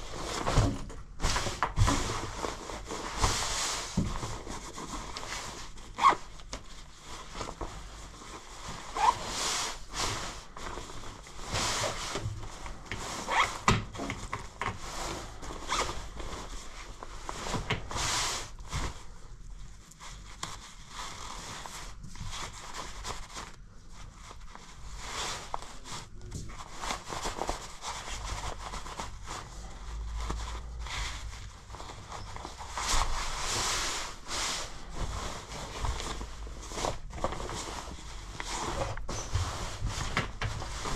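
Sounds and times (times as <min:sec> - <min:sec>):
nylon fabric rustling: 0:00.0 - 0:40.9
zippers being pulled: 0:09.0 - 0:09.3.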